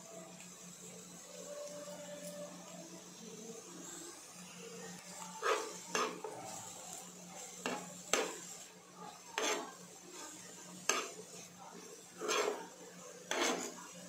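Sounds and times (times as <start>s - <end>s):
spatula scraping frying pan: 5.3s - 6.6s, 7.4s - 14.0s.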